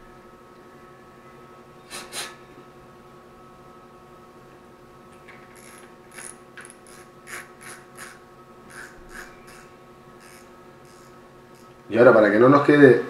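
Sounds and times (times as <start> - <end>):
steady low hum: 0.0 - 13.0
fishing reel clicking: 5.6 - 11.7.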